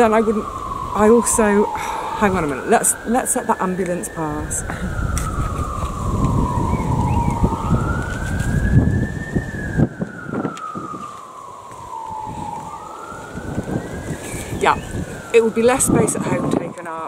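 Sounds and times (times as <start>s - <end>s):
low rumble: 0.0s - 11.0s
ambulance siren wailing: 0.0s - 17.0s.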